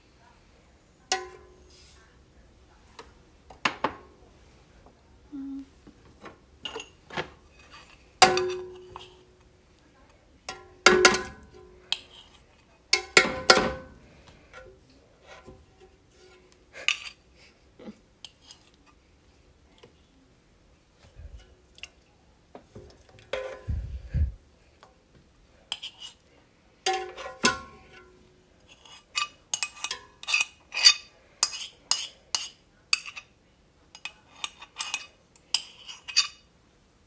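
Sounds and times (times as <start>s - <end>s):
utensils clinking against metal pan: 1.1s - 1.7s, 6.6s - 9.3s, 10.5s - 14.7s, 23.2s - 23.7s, 26.8s - 33.3s, 33.9s - 36.5s.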